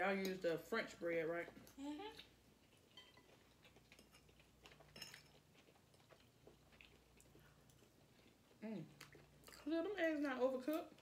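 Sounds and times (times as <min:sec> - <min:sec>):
cutlery clinking against plates: 0:02.9 - 0:03.3, 0:03.9 - 0:05.4.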